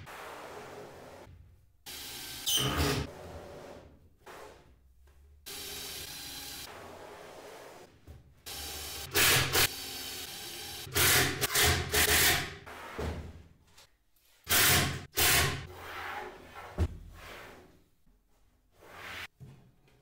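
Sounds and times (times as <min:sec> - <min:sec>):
drill driving screws: 0:08.5 - 0:12.5.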